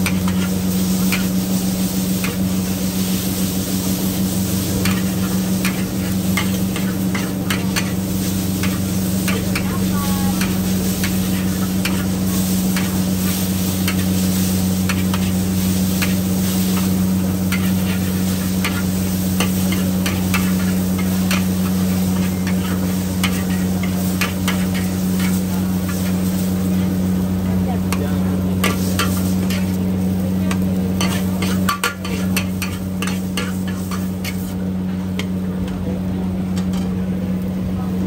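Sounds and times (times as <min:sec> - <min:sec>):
food sizzling in hot oil: 0:00.0 - 0:38.0
steady low hum: 0:00.0 - 0:38.0
metal spatula scraping a wok: 0:14.8 - 0:26.2, 0:31.0 - 0:34.5.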